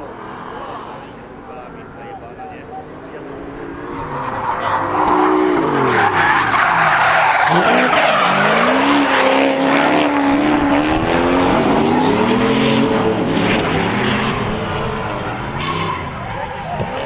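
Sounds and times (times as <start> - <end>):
car engines revving: 0.0 - 17.0
tyres screeching: 3.1 - 10.8, 11.4 - 17.0.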